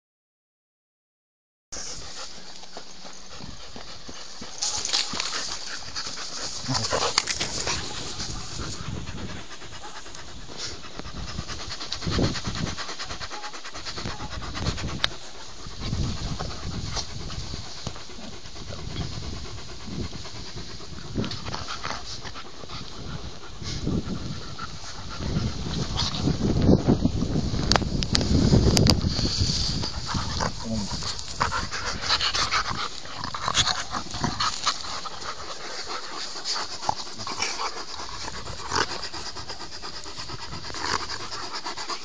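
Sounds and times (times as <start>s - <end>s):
dogs panting: 1.8s - 42.0s.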